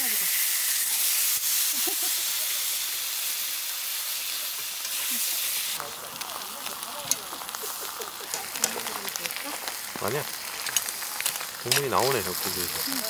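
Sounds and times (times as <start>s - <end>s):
food sizzling in a pan: 0.0s - 13.0s.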